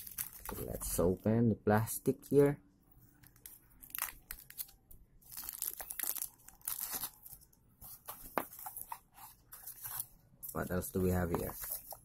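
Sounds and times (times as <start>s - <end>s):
plastic bag crinkling: 0.0s - 1.0s, 3.2s - 7.6s.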